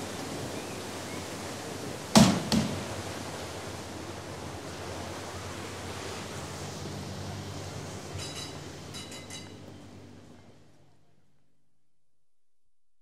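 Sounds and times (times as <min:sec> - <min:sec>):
water lapping: 0:00.0 - 0:08.2.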